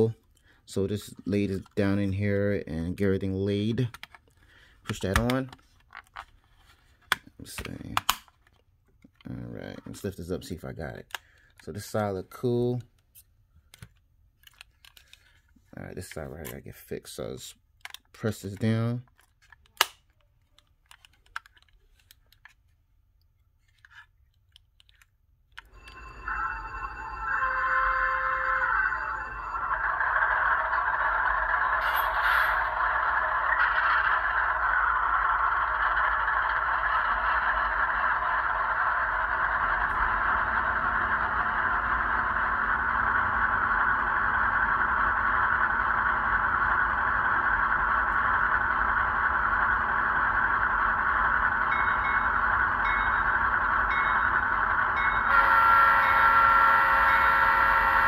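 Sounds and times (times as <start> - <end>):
diesel engine idling drone: 27.2 - 58.0.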